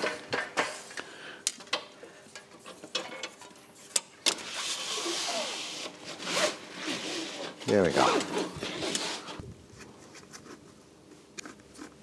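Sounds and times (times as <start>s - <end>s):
strip scraping through gap: 4.4s - 9.4s.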